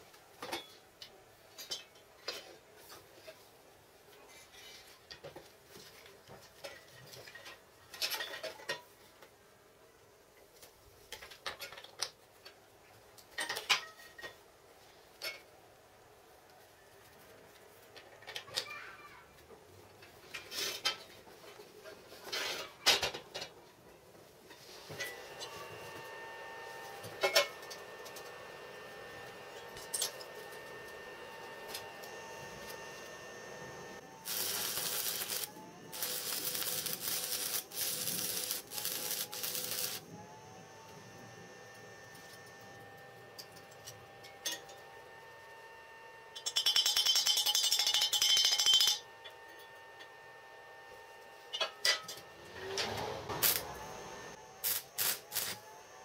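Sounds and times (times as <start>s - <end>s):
welder humming: 24.9s - 46.6s, 48.7s - 56.0s
welding arc crackling and hissing: 31.3s - 40.1s, 53.4s - 55.7s
steel pieces clinking on table: 46.4s - 49.0s.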